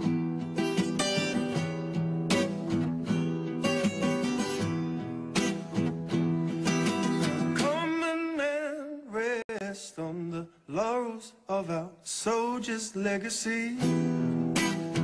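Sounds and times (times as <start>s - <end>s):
acoustic guitar strumming: 0.0s - 9.5s, 13.4s - 15.0s
man singing: 7.1s - 15.0s.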